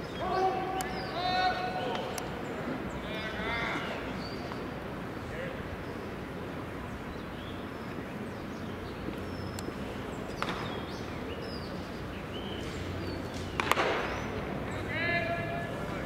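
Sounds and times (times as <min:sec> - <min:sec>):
low crowd murmur: 0:00.0 - 0:16.0
baseball bat crack: 0:10.3 - 0:10.8, 0:13.2 - 0:14.4.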